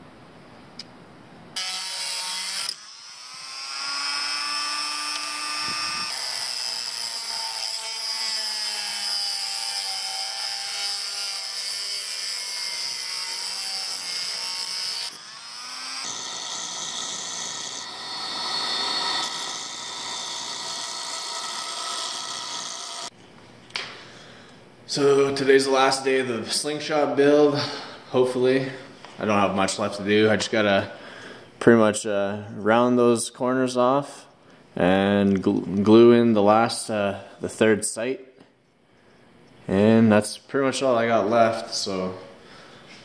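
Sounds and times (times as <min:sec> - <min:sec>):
rotary tool sanding wood: 0:01.6 - 0:23.2
grinding machine whine: 0:11.0 - 0:23.1.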